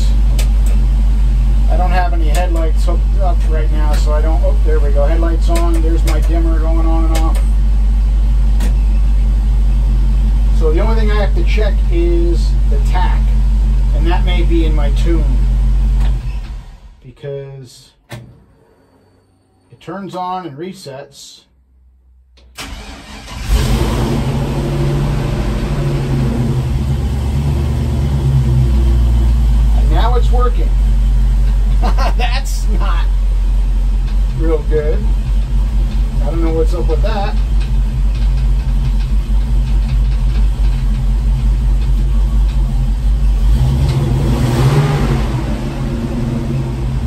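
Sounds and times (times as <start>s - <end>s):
pickup engine idling: 22.6s - 47.0s.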